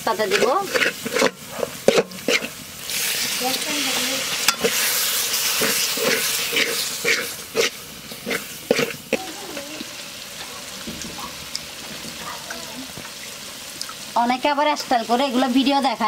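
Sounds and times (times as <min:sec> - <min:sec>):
metal spatula scraping pot: 0:00.0 - 0:09.3
spice paste sizzling in oil: 0:00.0 - 0:16.0.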